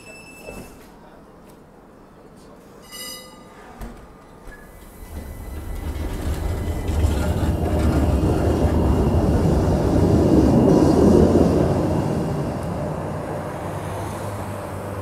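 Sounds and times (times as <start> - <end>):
tram running gear rumbling: 4.7 - 15.0.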